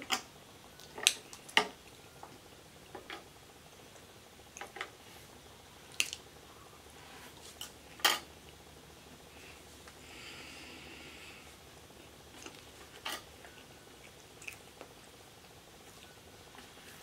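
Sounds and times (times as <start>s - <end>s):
quiet eating noises: 12.0s - 17.0s.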